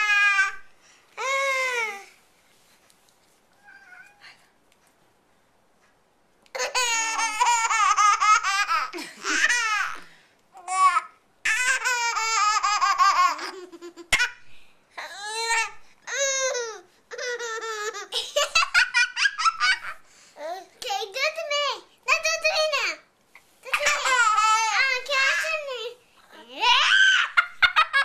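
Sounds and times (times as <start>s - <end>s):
baby giggling: 6.5s - 10.0s, 10.6s - 14.4s, 23.7s - 25.5s.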